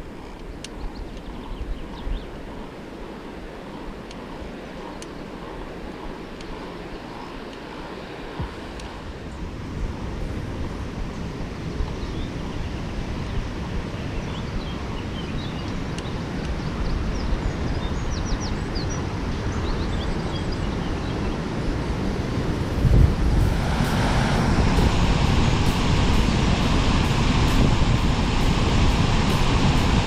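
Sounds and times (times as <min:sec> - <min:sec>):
small birds chirping: 0:00.0 - 0:02.8, 0:03.7 - 0:07.8, 0:11.9 - 0:21.5
wind buffeting microphone: 0:00.0 - 0:30.0.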